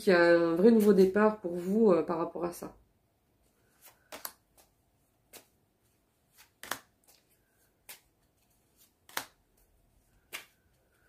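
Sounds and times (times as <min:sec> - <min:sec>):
cards being shuffled: 0:03.6 - 0:05.6, 0:06.2 - 0:11.0.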